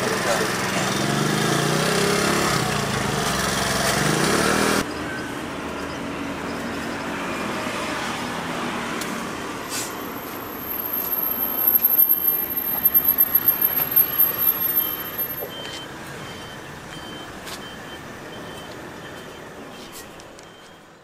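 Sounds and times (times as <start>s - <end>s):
street traffic: 0.0s - 21.0s
reversing beeper: 4.8s - 6.1s, 10.0s - 21.0s.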